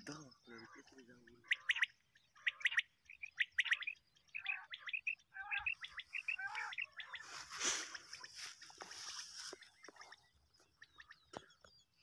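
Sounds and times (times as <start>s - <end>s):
quail chirping: 0.0s - 12.0s
rustling noise: 6.6s - 10.0s.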